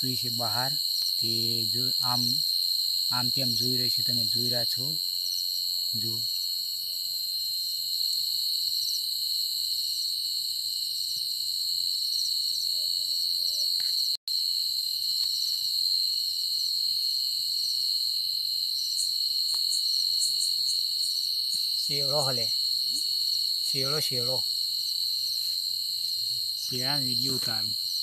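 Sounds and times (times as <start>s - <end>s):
rapid cricket chirps: 0.0s - 28.0s
shrill insect tones: 0.0s - 28.0s.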